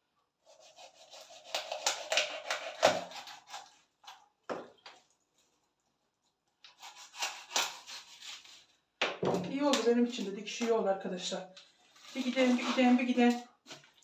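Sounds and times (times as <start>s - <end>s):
knife cutting on wooden board: 0.5s - 3.7s, 6.7s - 8.6s.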